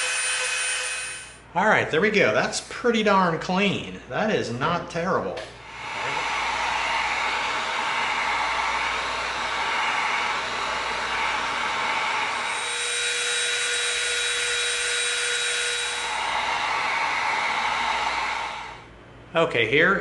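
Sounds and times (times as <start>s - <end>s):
heat gun blowing: 0.0s - 1.4s, 5.6s - 18.9s
rotary tool whine: 0.0s - 1.4s, 5.6s - 18.9s.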